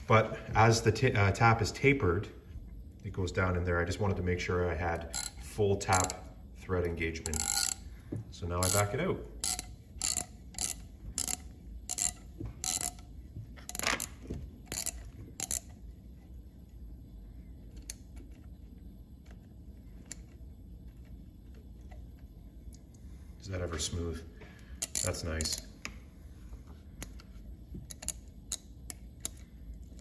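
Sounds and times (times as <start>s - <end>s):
tap wrench clicking: 8.6s - 13.0s, 14.7s - 15.7s, 27.0s - 29.4s.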